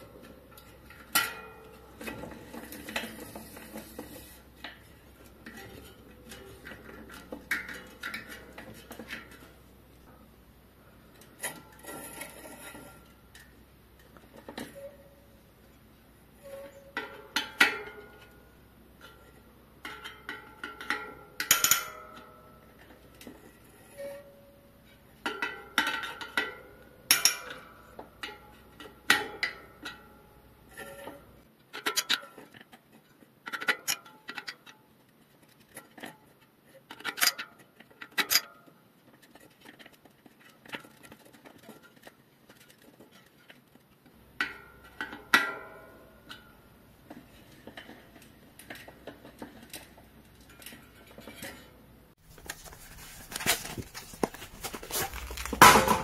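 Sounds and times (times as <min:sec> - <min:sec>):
metal clinks and knocks: 0:52.3 - 0:56.0.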